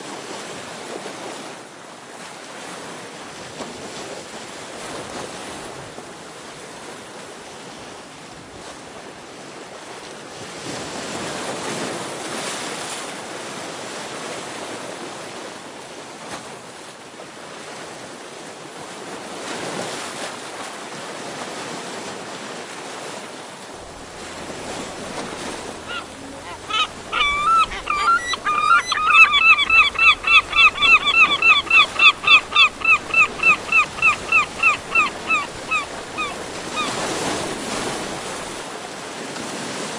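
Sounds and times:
waves breaking on rocks: 0:00.0 - 0:39.9
bird calling rapidly: 0:23.9 - 0:38.4.

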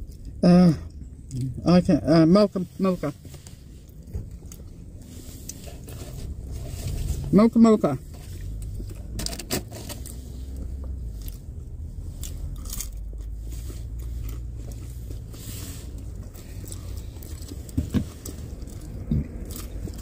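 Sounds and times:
steady low hum: 0:00.0 - 0:20.0
fork and food clicks and crunches: 0:12.2 - 0:13.3.

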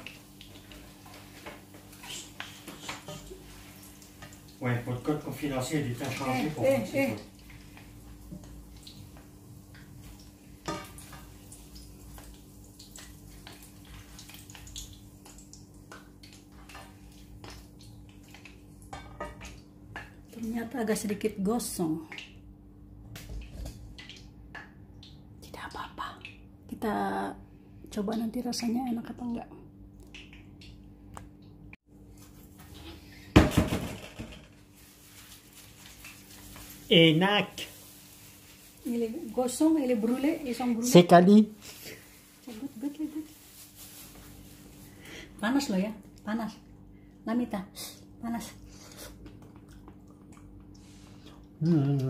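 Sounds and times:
pops and crackles of frying: 0:00.0 - 0:20.7, 0:21.6 - 0:25.3, 0:29.9 - 0:31.6, 0:32.6 - 0:40.8, 0:41.6 - 0:44.9
chillies frying in hot oil: 0:00.0 - 0:22.4, 0:34.6 - 0:46.6
kitchenware clattering: 0:18.9 - 0:20.2.

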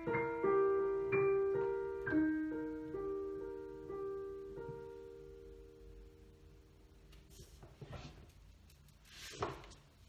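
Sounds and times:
slow solo piano chords: 0:00.0 - 0:07.0.

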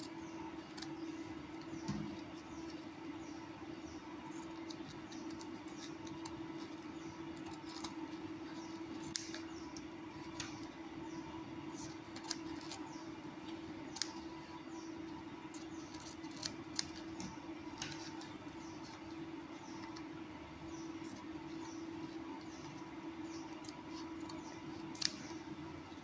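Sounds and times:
steady low hum: 0:00.0 - 0:26.0
scissors snipping: 0:09.0 - 0:09.4, 0:11.7 - 0:12.8, 0:13.9 - 0:14.2, 0:15.5 - 0:17.1, 0:23.5 - 0:25.3.

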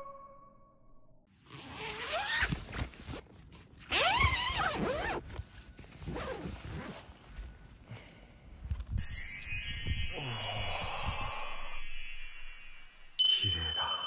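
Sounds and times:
tent zipper rasping open: 0:01.4 - 0:05.3, 0:05.9 - 0:07.2.

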